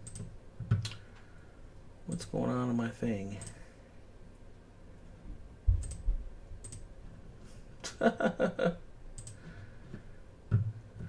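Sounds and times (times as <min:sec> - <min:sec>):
computer mouse clicks: 0:00.0 - 0:01.1, 0:05.8 - 0:06.9, 0:09.2 - 0:09.5.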